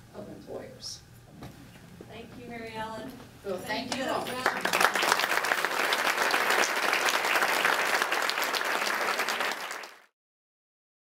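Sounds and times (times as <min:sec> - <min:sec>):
audience applauding: 0:03.9 - 0:10.1.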